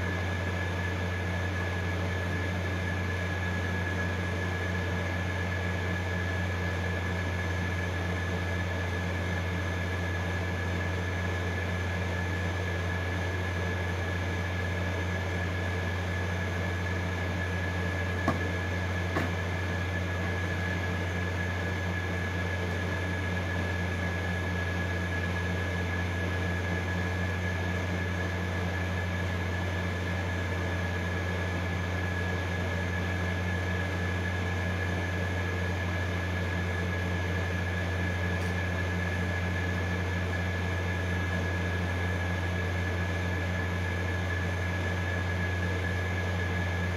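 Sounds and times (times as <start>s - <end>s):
low machine hum with high whine: 0.0s - 46.9s.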